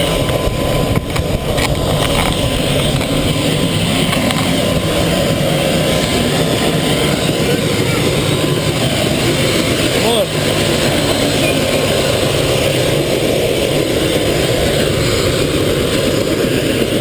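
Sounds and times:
helicopter engine and rotor: 0.0 - 17.0.

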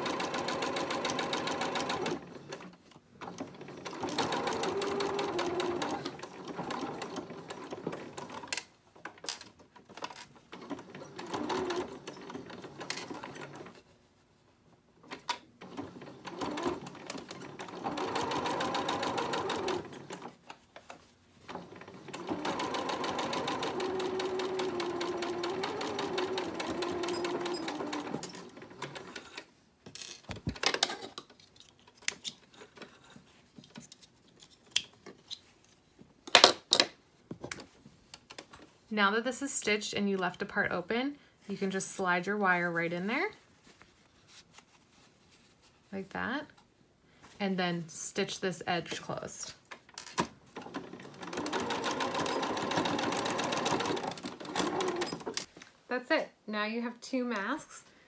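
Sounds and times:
sewing machine stitching: 0.0 - 8.6, 9.8 - 13.8, 15.6 - 20.4, 21.5 - 29.4, 50.2 - 55.5.

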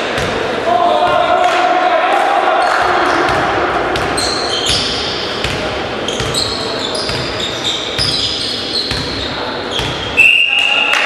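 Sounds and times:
ball bouncing: 2.8 - 7.4, 8.0 - 10.2
shoes squeaking on gym floor: 4.2 - 10.8.

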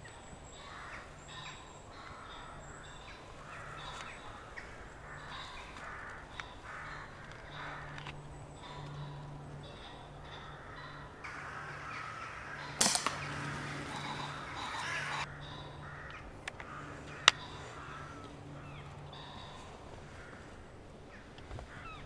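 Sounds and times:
crows cawing: 0.5 - 22.0
air rifle shot: 12.6 - 15.2.

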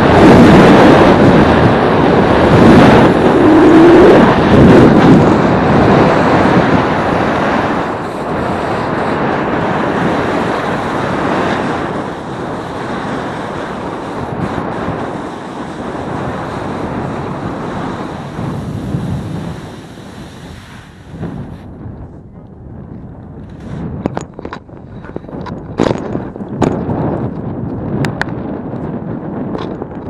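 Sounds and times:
wind rushing on microphone: 0.0 - 30.0
skis scraping over snow: 0.8 - 21.7.

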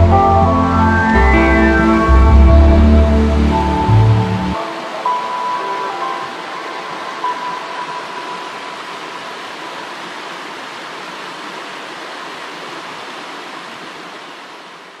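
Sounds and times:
stream running over stones: 4.5 - 15.0.

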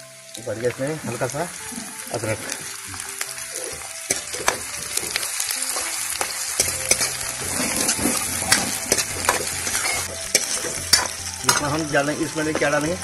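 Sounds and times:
onions sizzling in hot oil: 0.0 - 13.0
ladle scraping metal pan: 6.6 - 11.8.

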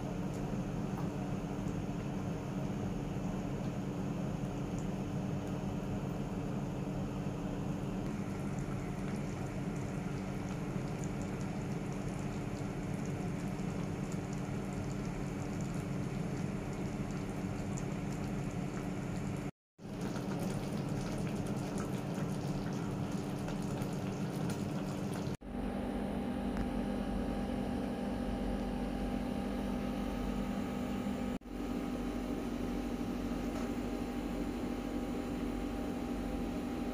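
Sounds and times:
sauce simmering in a pan: 0.3 - 25.4
steady hum: 20.8 - 36.9.

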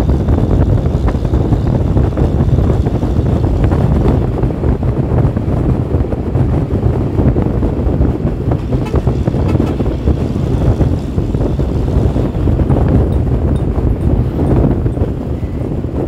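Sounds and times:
road noise: 0.0 - 16.0
vehicle engine rumble: 0.0 - 16.0
wind buffeting microphone: 0.0 - 16.0.

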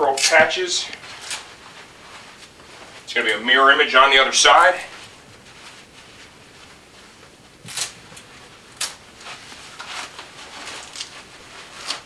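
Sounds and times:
leather and fabric rustling: 0.4 - 3.2, 4.8 - 12.0
velcro tearing apart: 7.6 - 9.0.

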